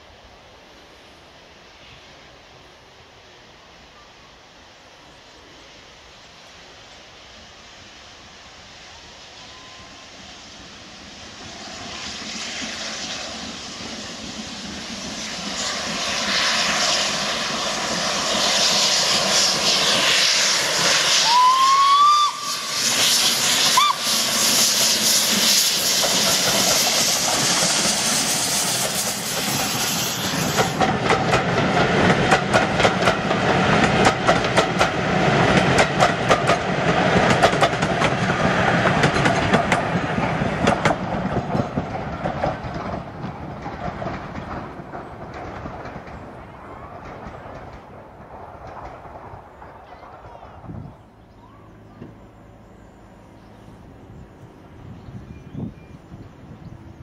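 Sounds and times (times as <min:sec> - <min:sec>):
steam locomotive exhaust: 0:00.0 - 0:55.7
rising train whistle: 0:08.9 - 0:10.2, 0:21.0 - 0:24.4
wheels clacking over rail joints: 0:25.0 - 0:50.3.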